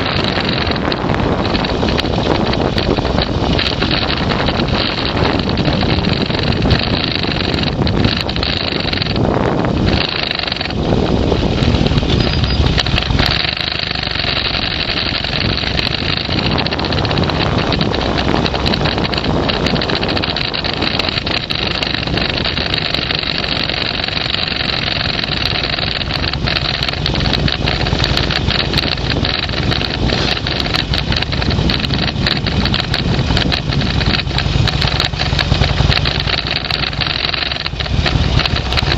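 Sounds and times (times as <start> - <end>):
vehicle engine running: 0.0 - 38.9.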